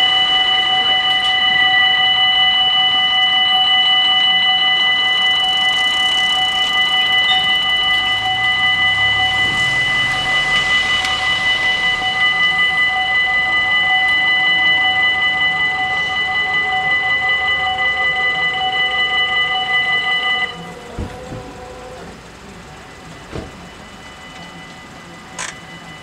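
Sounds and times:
level crossing warning bells: 0.0s - 26.0s.

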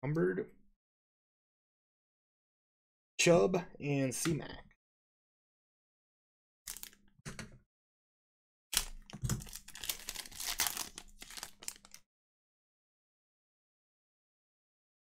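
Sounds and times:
foil wrapper crinkling and tearing: 6.7s - 7.0s, 8.8s - 12.0s.

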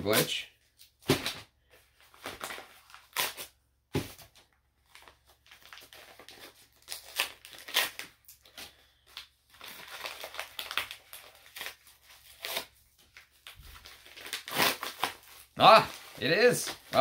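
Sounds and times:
packaging crinkling: 4.9s - 17.0s.

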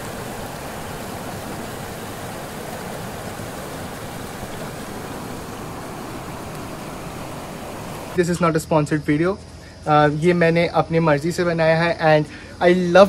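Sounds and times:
river rushing over stones: 0.0s - 8.2s.

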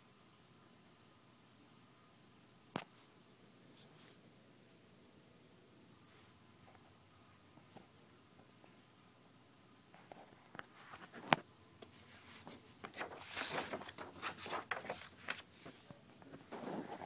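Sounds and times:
rustling against towel: 2.9s - 4.8s, 11.9s - 17.0s.

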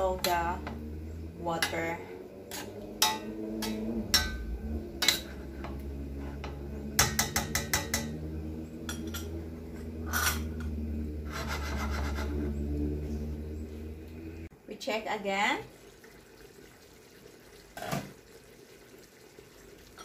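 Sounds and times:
steady low hum: 0.0s - 14.7s
metal spoon clinking in pan: 2.5s - 4.4s.

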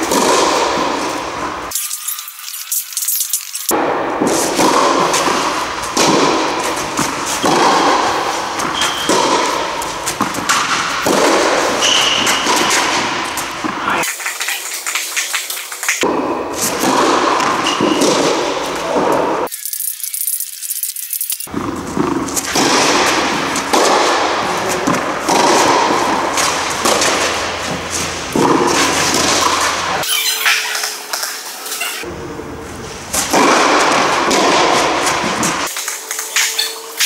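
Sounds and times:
balls thudding on court: 0.0s - 1.7s, 3.7s - 19.4s, 21.5s - 30.9s, 33.1s - 36.6s
tennis balls struck by rackets: 0.0s - 1.8s, 3.7s - 19.5s, 21.5s - 32.2s, 33.0s - 37.0s
loud uneven rushing noise: 21.5s - 30.1s.

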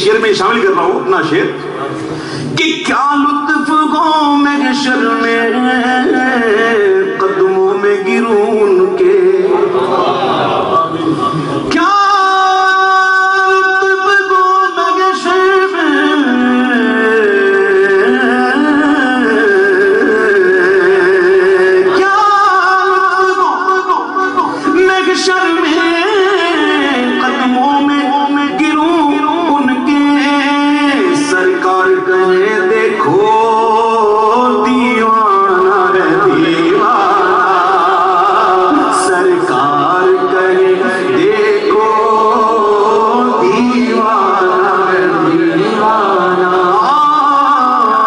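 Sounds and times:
man singing into microphone: 2.5s - 48.0s.

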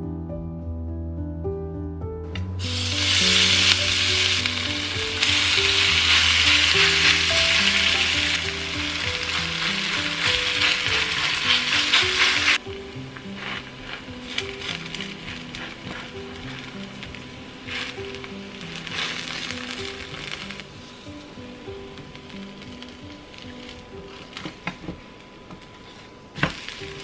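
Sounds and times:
food sizzling in oil in a frying pan: 2.6s - 24.4s, 26.4s - 27.0s.

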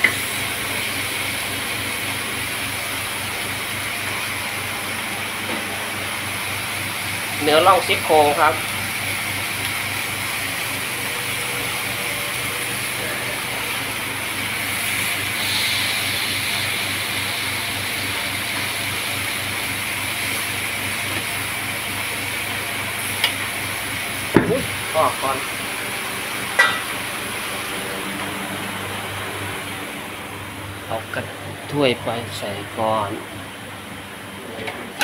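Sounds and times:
meat sizzling on a grill pan: 13.6s - 25.3s.

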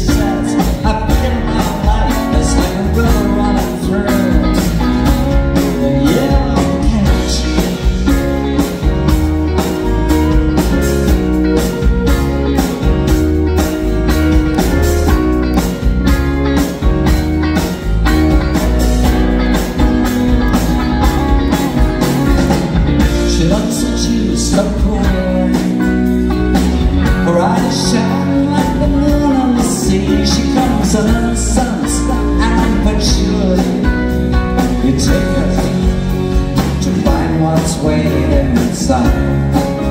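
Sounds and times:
soft rock band playing: 0.0s - 39.9s
flute lead line: 9.0s - 13.1s.

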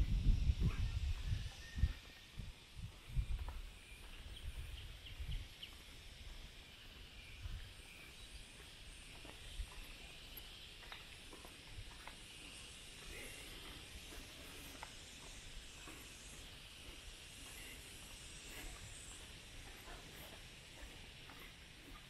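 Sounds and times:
insect chorus: 0.0s - 22.0s
footsteps on wooden boardwalk: 5.6s - 22.0s.

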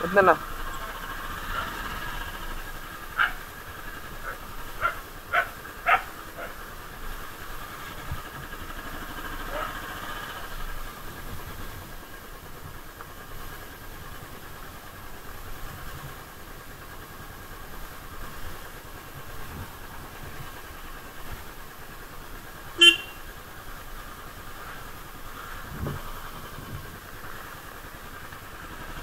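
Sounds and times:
motorcycle engine running: 0.0s - 29.0s
short horn beep: 22.8s - 23.2s.

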